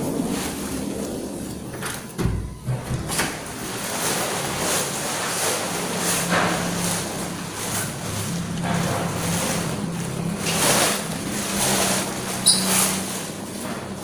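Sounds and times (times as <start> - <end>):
wind buffeting microphone: 0.0 - 4.6.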